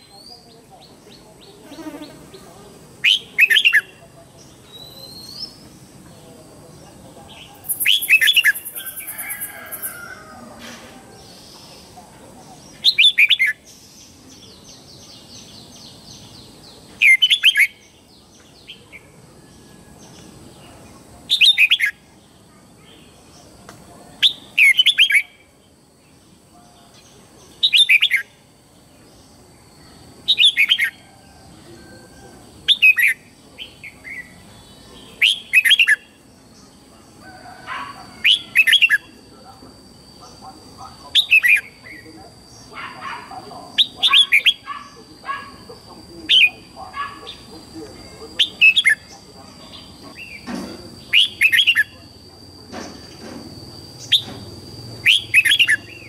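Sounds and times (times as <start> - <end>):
bird singing whistled phrases: 55.0 - 56.0.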